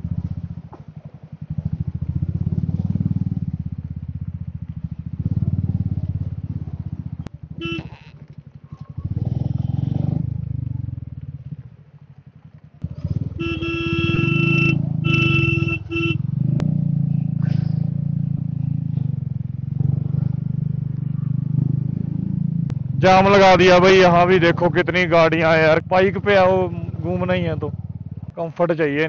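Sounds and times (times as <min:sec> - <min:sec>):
motorcycle engine running: 0:00.0 - 0:29.0
motorcycle horn: 0:07.5 - 0:08.2, 0:13.1 - 0:16.4.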